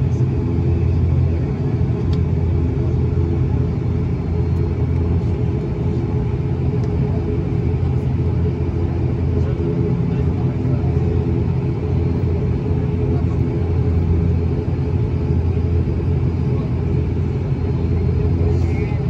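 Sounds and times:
turboprop engines droning in cabin: 0.0 - 19.0.

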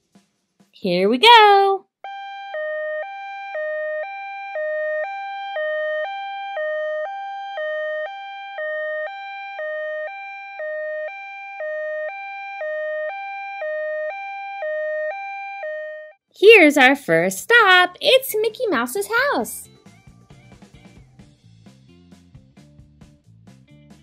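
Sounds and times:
electronic two-tone siren: 1.3 - 16.2.

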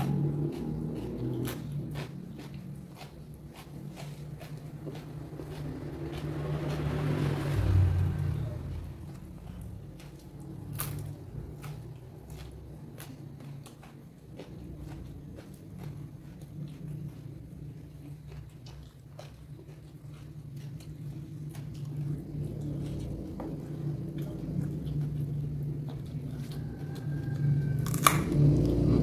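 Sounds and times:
chewing raw vegetables: 0.0 - 29.0
steady low hum: 0.0 - 29.0.

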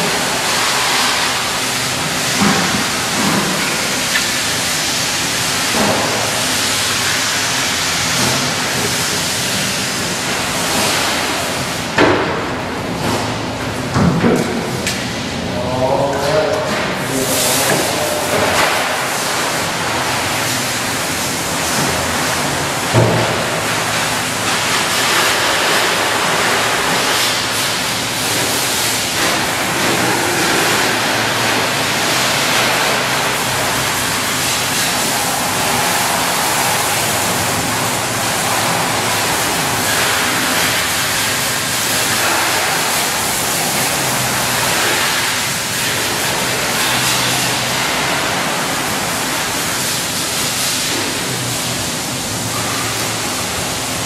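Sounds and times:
high-pressure water spraying: 0.0 - 12.4, 16.6 - 54.0.

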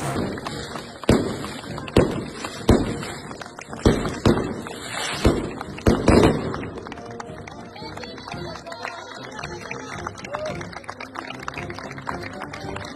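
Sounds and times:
fireworks bangs: 0.0 - 6.7.

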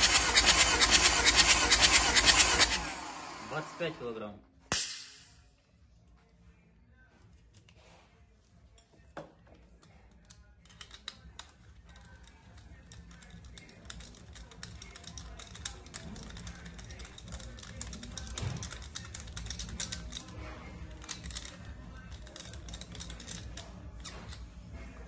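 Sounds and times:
metal fittings clicking and rattling: 9.8 - 24.4.

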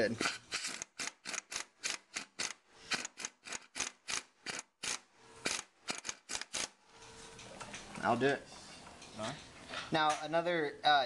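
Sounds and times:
impact wrench bursts: 0.2 - 6.8.

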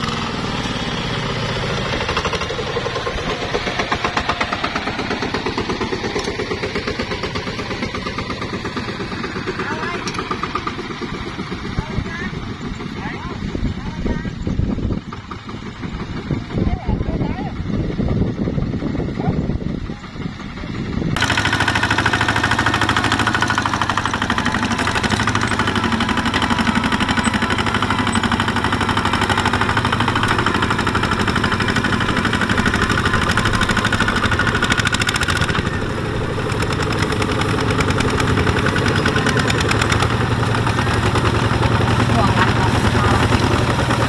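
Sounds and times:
diesel tractor engine chugging: 0.0 - 44.0.

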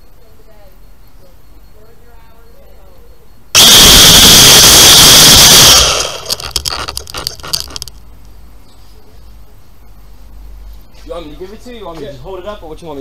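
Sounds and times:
scrapes and clicks: 5.7 - 8.0.

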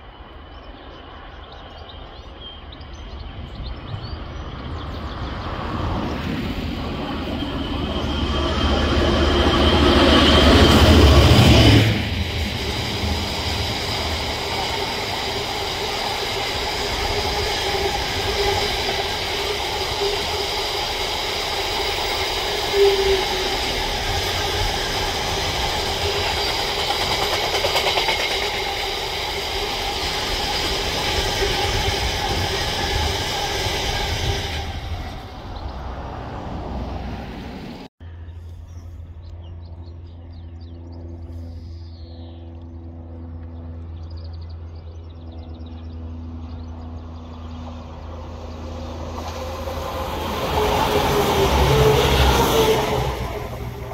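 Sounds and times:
train wheels rumbling on rail: 0.0 - 37.9, 46.5 - 53.9
continuous high whine: 38.0 - 50.1.

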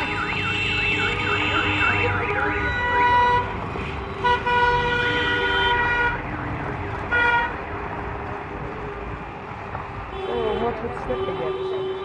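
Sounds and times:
warbling siren horn: 0.0 - 3.5, 4.2 - 7.8
car horns blasting: 0.0 - 6.2, 10.1 - 12.0.

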